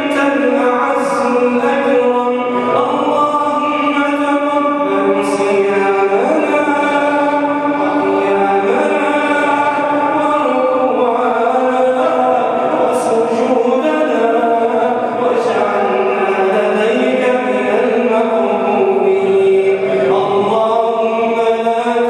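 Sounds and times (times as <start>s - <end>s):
congregation voices joining in: 0.0s - 22.0s
man chanting over loudspeakers: 0.0s - 22.0s.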